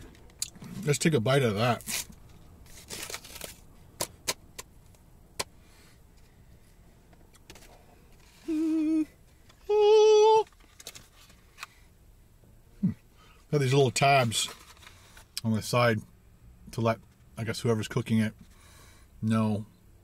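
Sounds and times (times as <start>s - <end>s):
man humming with mouth full: 8.4s - 10.5s
faint clicks and rustles: 10.4s - 11.9s.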